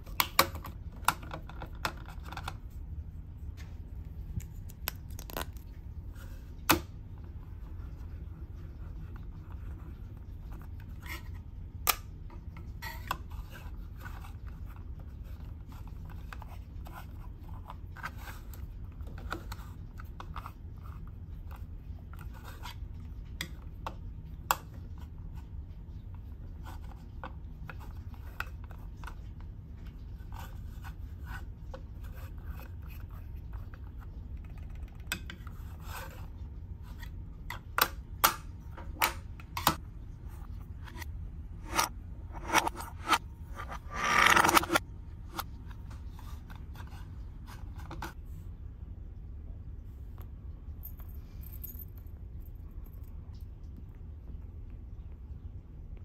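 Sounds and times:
steady low hum: 0.0s - 56.0s
plastic parts rubbing and scraping: 40.4s - 48.2s.

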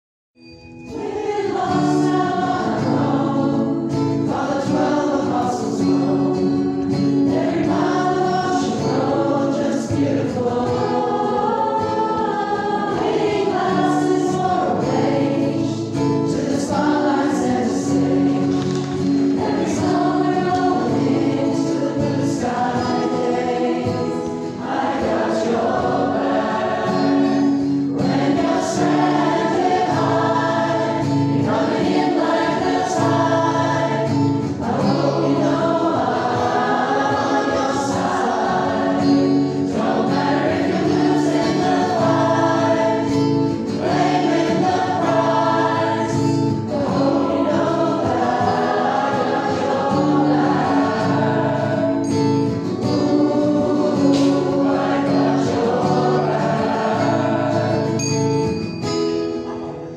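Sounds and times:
choir singing in harmony: 0.8s - 58.6s.

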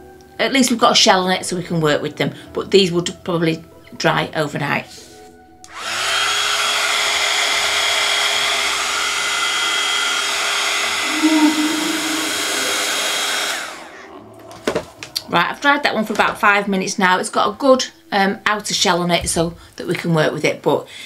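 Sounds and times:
heat gun fan whining: 5.7s - 15.1s.

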